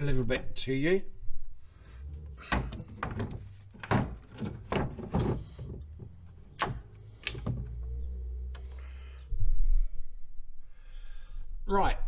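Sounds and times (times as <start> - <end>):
handling knocks and thuds: 2.4 - 7.8.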